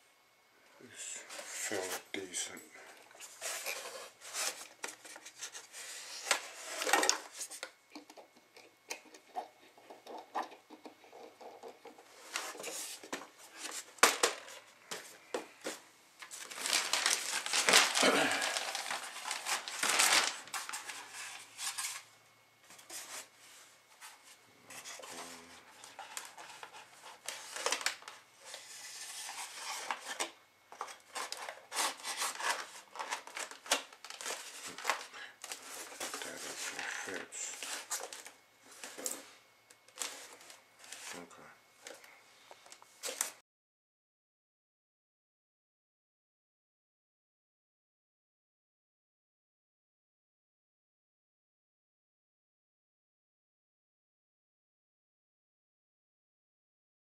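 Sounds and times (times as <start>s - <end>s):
foam and packaging rustling: 1.1s - 7.8s, 12.0s - 22.1s, 22.7s - 39.3s, 39.9s - 43.4s.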